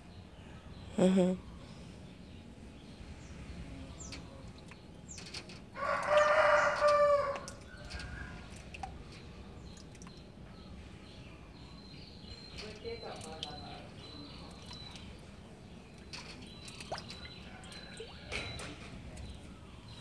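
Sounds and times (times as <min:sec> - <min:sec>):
rooster crowing: 0:05.8 - 0:08.4.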